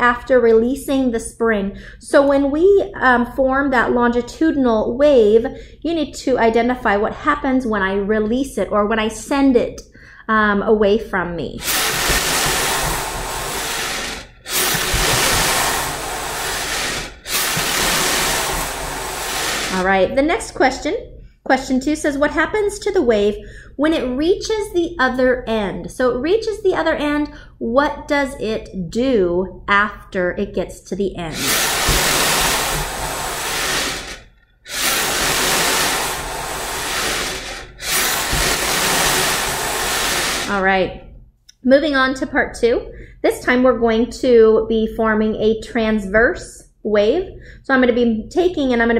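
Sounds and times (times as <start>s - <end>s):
steady hiss: 11.6s - 19.9s, 31.4s - 40.6s.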